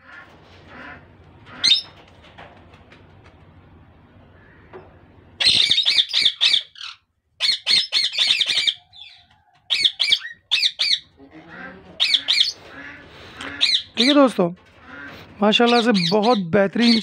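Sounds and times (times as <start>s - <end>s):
parakeets squawking: 0.7s - 2.0s, 5.4s - 17.0s.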